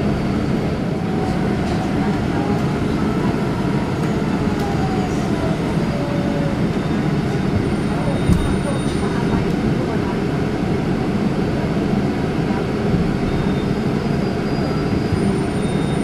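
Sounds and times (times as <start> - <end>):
bus engine and road rumble: 0.0 - 16.0.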